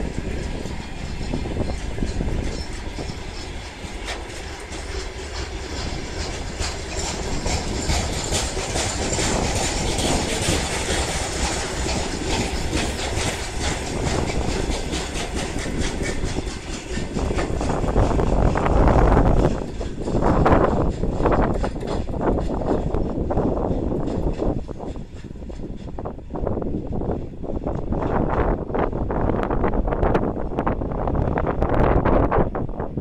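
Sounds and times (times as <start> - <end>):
wheels clicking over rail joints: 0.0 - 26.2
freight train rolling past: 0.0 - 33.0.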